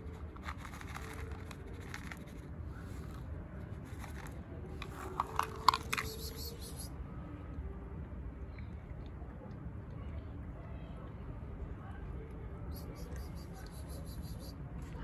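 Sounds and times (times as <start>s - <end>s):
kibble clicking on concrete: 0.0s - 3.2s, 3.9s - 6.9s
cat crunching food: 0.0s - 6.5s.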